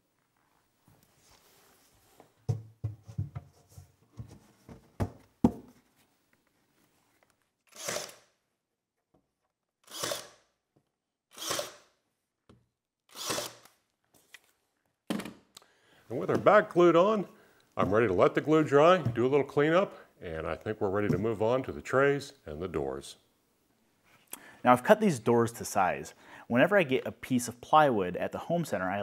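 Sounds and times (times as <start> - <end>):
wooden panel knocks and clatter: 2.5 - 5.7
cordless drill driving screws: 7.7 - 8.3, 9.8 - 10.4, 11.3 - 11.9, 13.1 - 13.8.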